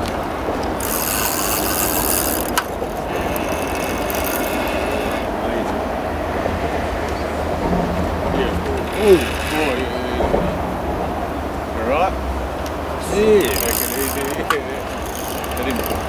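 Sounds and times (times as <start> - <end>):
road traffic rumble: 0.0 - 16.0
fishing reel rasping: 0.6 - 5.4, 8.8 - 9.9, 13.1 - 16.0.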